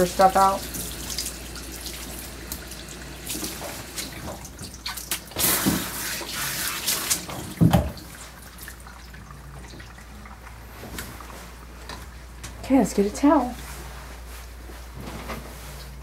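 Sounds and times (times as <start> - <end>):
water dripping in bathtub: 7.5 - 12.5.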